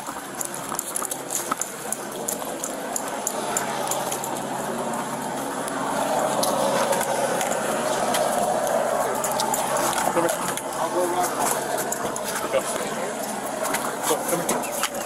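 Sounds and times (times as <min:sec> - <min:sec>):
rustling with clicks and rattles: 0:00.0 - 0:15.0
rushing noise: 0:02.1 - 0:15.0.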